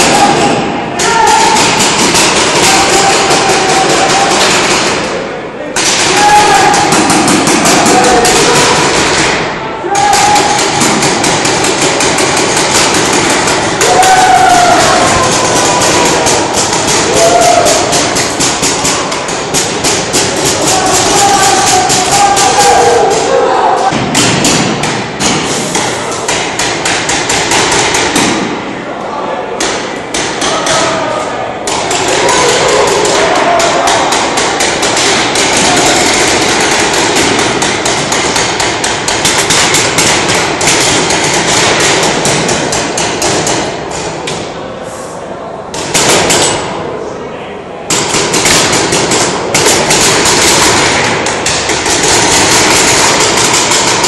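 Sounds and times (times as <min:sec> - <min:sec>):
paintball markers firing: 0:00.0 - 0:05.1, 0:05.8 - 0:23.1, 0:23.9 - 0:28.5, 0:31.7 - 0:44.1, 0:47.9 - 0:54.0
voices calling out: 0:00.0 - 0:24.2, 0:28.4 - 0:40.7.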